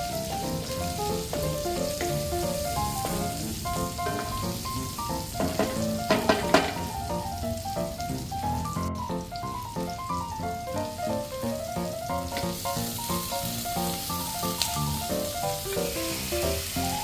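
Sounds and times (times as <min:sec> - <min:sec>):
melodic background music: 0:00.0 - 0:17.0
vegetables sizzling in a wok: 0:00.0 - 0:17.0
spatula knocking and scraping wok: 0:00.2 - 0:07.0.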